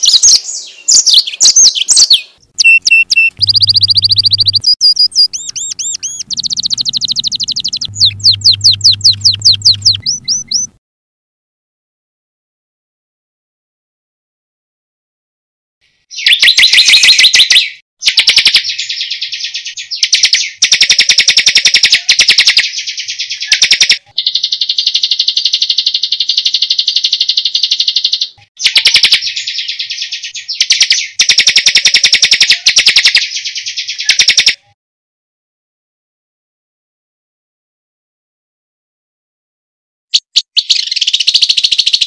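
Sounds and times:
songbird rolling trills: 0:02.6 - 0:10.8.

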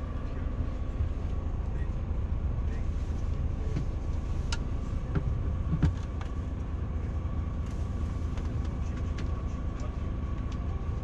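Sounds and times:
coach engine rumbling: 0:00.0 - 0:11.0.

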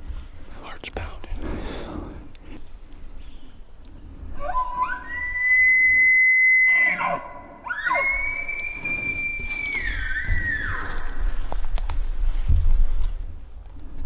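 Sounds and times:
elk bugling: 0:04.2 - 0:11.2.

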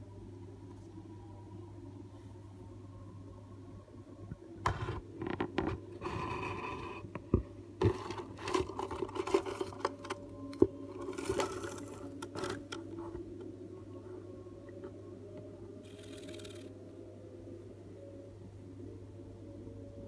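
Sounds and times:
scratching and scraping in wood box: 0:07.8 - 0:10.2, 0:11.0 - 0:12.8.

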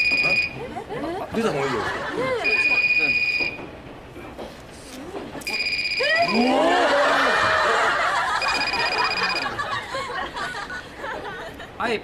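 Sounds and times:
mobile phone ring tone: 0:00.0 - 0:00.6, 0:02.4 - 0:03.6, 0:05.5 - 0:06.4, 0:08.4 - 0:09.6
audience laughing: 0:00.6 - 0:02.7, 0:06.2 - 0:11.8.

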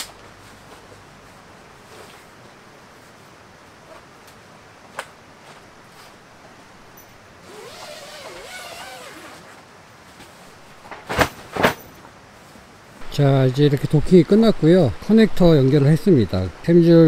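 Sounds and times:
zipper pulled open: 0:07.4 - 0:09.6.

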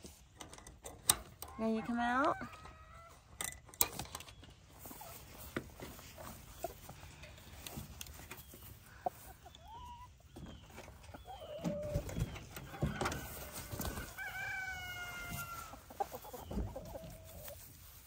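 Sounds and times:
chickens clucking: 0:00.1 - 0:18.0
rooster crowing: 0:12.6 - 0:15.8.

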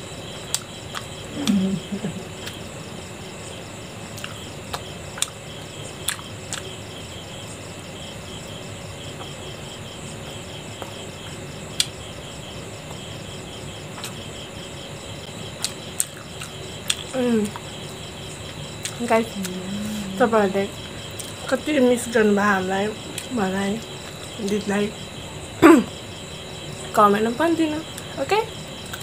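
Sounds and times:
insects chirping: 0:00.0 - 0:29.0
chewing and mouth sounds: 0:04.2 - 0:05.4, 0:06.0 - 0:06.7, 0:14.0 - 0:14.2, 0:15.6 - 0:17.7, 0:18.8 - 0:19.7.

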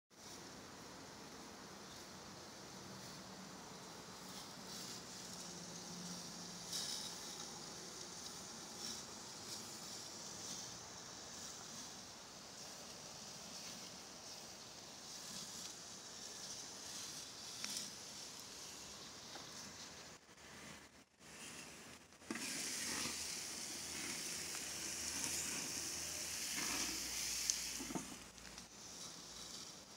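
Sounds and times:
food sizzling crackles: 0:04.0 - 0:29.9
gas grill hissing: 0:21.3 - 0:29.8.

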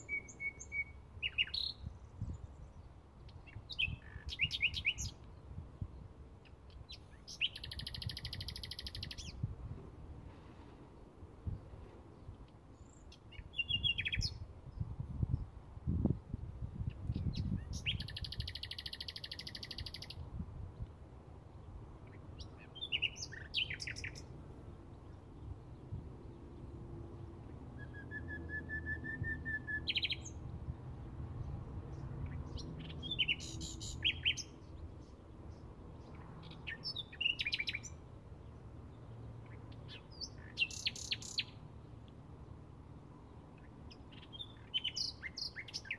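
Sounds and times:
bird singing: 0:00.0 - 0:05.3, 0:06.4 - 0:09.5, 0:12.2 - 0:14.4, 0:16.9 - 0:20.2, 0:22.0 - 0:24.3, 0:27.8 - 0:30.4, 0:31.4 - 0:42.0, 0:43.6 - 0:45.9.

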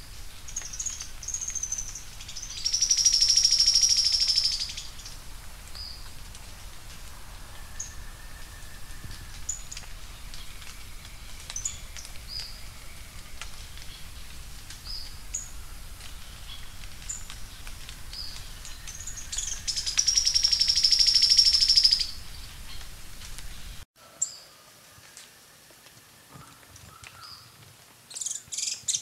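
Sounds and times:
bird calling with high thin notes: 0:00.0 - 0:05.2, 0:07.5 - 0:24.6.

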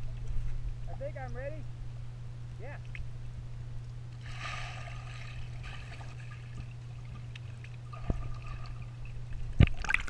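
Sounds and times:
steady low hum: 0:00.0 - 0:10.0
soft underwater bubbling: 0:02.8 - 0:10.0
underwater rush of bubbles: 0:07.9 - 0:10.0.

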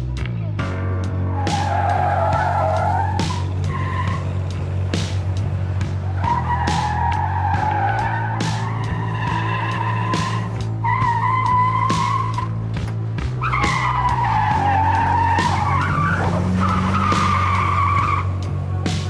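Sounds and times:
car tires squealing: 0:01.3 - 0:05.3, 0:05.9 - 0:12.7, 0:13.3 - 0:18.6.

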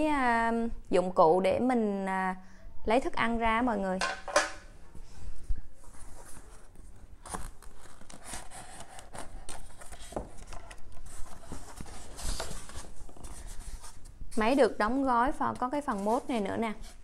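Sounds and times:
cardboard and foam rustling: 0:05.8 - 0:17.0.

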